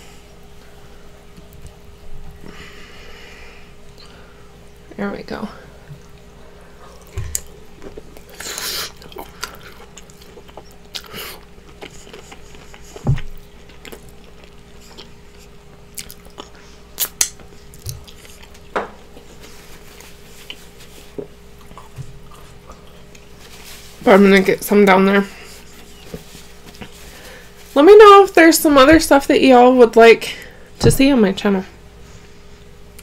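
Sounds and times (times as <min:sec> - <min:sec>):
faint steady hum: 0:00.0 - 0:33.0
chewing food: 0:05.8 - 0:23.7.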